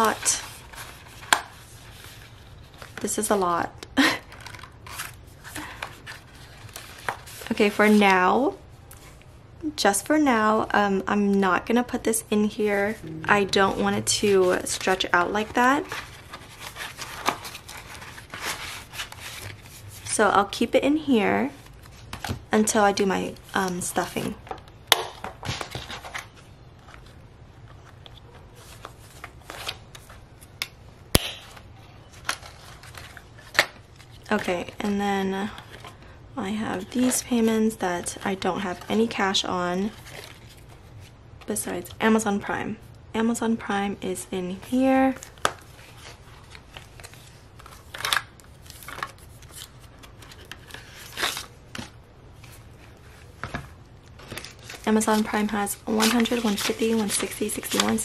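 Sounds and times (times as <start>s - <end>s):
plastic and paper crinkling: 0.0s - 3.1s, 4.0s - 8.0s, 13.5s - 20.1s, 31.9s - 34.8s, 45.0s - 58.0s
plastic pages rustling: 0.0s - 3.4s, 4.0s - 8.0s, 13.5s - 20.1s, 25.0s - 30.6s, 31.6s - 41.2s, 44.6s - 58.0s.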